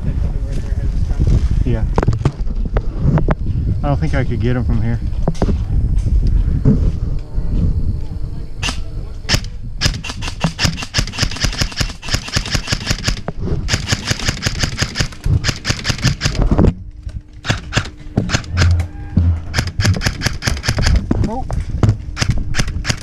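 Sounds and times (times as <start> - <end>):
airsoft gun firing bursts: 8.6 - 16.5, 17.4 - 18.8, 19.5 - 21.0, 22.2 - 23.0.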